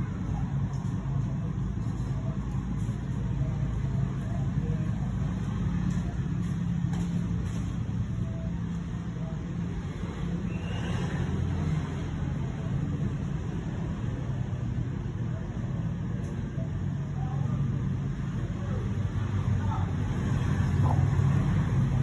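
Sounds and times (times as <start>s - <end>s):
steady low rumble: 0.0s - 10.5s.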